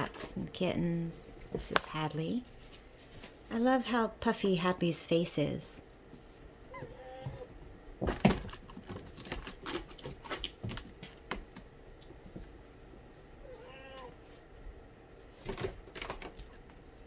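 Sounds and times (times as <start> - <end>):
kitten meowing: 6.7 - 7.5, 13.4 - 14.2.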